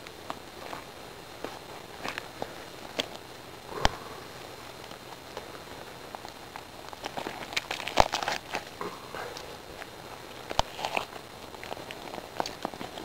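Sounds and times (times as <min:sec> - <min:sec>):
clicks and rustles of gutting bird: 0:04.8 - 0:13.0.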